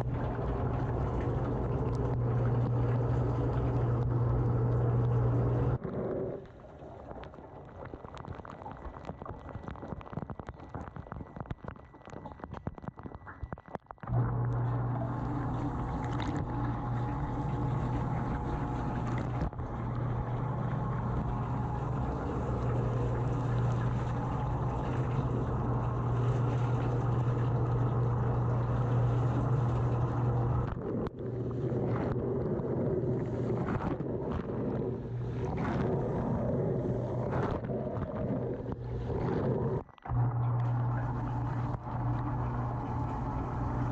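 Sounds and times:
dishwasher pump hum: 0.0 - 5.8, 14.1 - 43.9
water jets splashing: 14.2 - 43.9.

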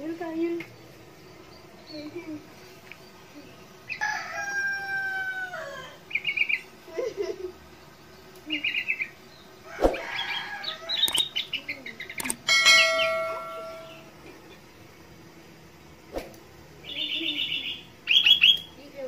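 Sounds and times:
bird singing trilled phrases: 6.1 - 6.7, 7.8 - 9.6, 10.2 - 14.1, 16.8 - 18.8.

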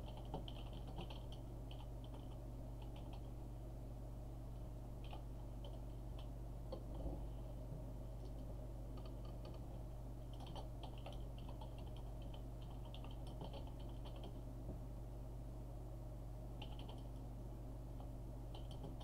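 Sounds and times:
typing on computer keyboard: 0.0 - 3.3, 5.0 - 6.9, 9.0 - 9.6, 10.3 - 14.4, 16.6 - 17.1, 18.5 - 19.0
steady low hum: 0.0 - 19.0.

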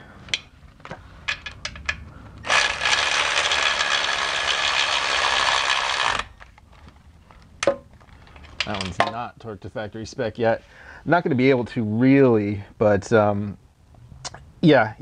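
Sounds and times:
cordless electric ratchet running: 2.4 - 6.4.

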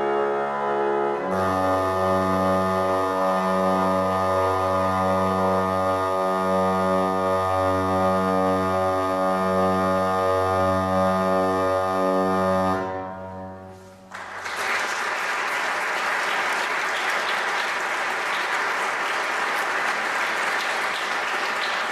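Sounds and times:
pipe organ chord: 0.0 - 14.2
audience applause: 14.1 - 21.9.

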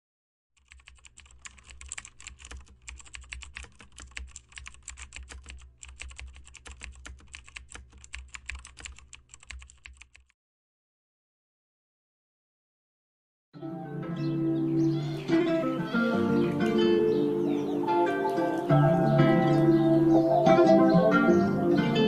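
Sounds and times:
keyboard typing: 0.6 - 10.4.

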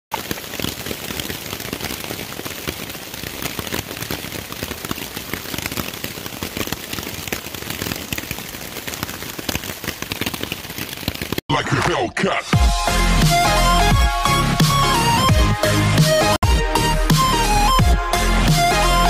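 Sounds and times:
rain pattering on a tarp: 0.1 - 11.5.

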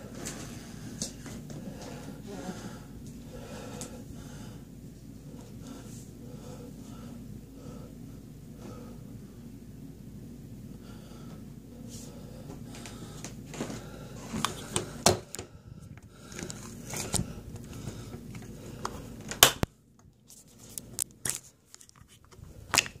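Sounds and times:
low background hum: 0.0 - 23.0
handling noise on phone: 16.3 - 23.0.

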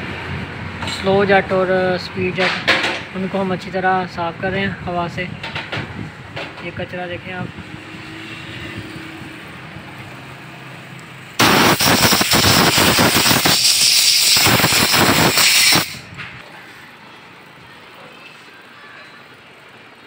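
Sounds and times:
compressed air blow gun hissing: 11.4 - 16.0.

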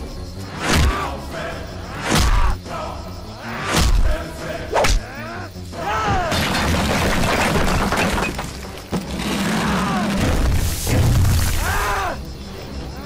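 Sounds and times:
dramatic background music: 0.0 - 13.0
crash of breaking debris: 6.3 - 11.7.

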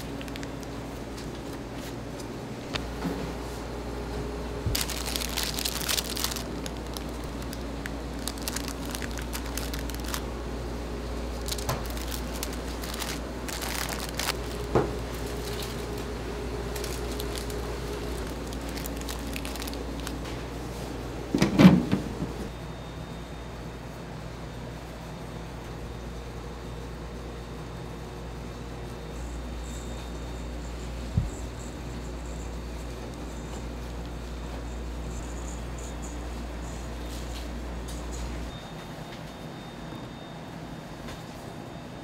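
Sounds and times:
crinkling and rustling: 0.0 - 3.2, 4.6 - 10.4, 11.1 - 22.0
steady low hum: 0.0 - 42.0.

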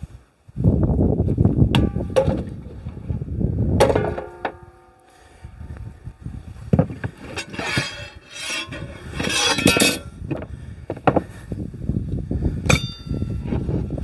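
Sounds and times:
scraping or rustling: 6.5 - 10.1.

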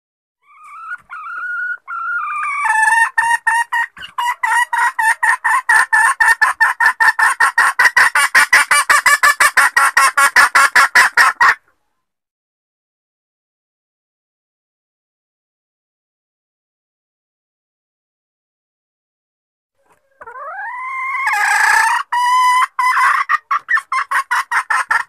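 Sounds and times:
junglefowl hen clucking: 0.4 - 11.9, 19.8 - 25.0.

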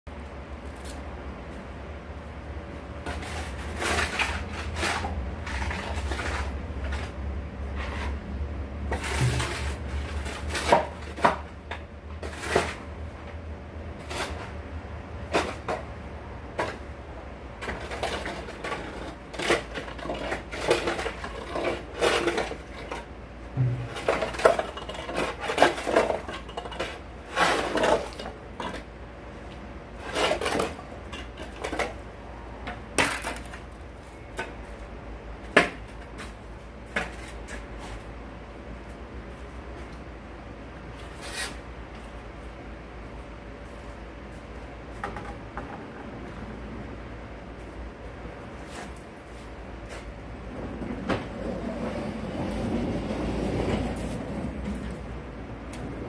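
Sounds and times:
low steady hum: 0.1 - 41.0
hard objects clattering and knocking: 8.9 - 11.8, 17.6 - 28.9.

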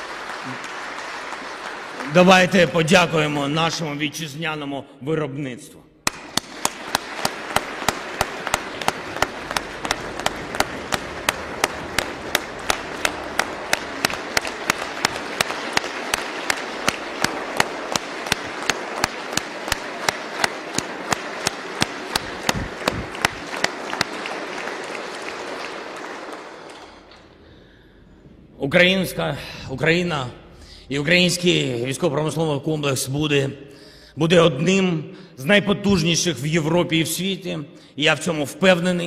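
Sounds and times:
loud evenly spaced claps: 0.0 - 3.7, 6.0 - 28.2
audience applauding: 0.0 - 3.8, 6.0 - 27.8.

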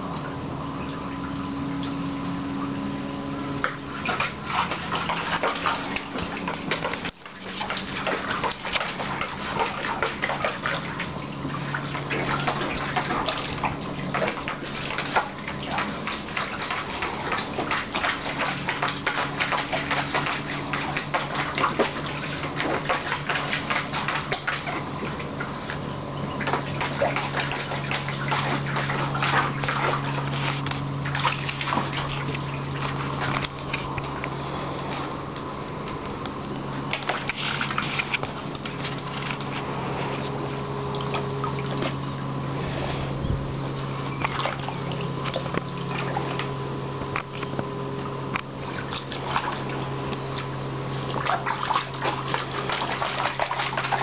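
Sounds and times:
dog splashing in water: 3.5 - 35.0, 36.8 - 43.0, 43.6 - 54.0.

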